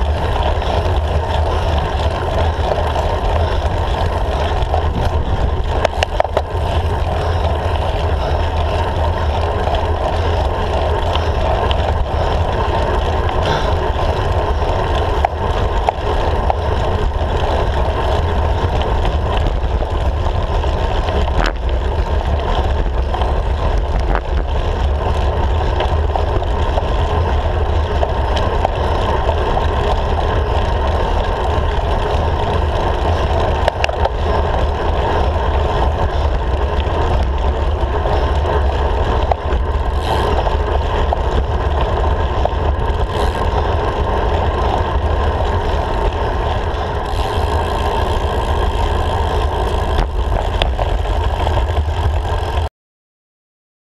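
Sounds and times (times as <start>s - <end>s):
wind rush: 0.0s - 9.6s
road rumble: 0.0s - 52.7s.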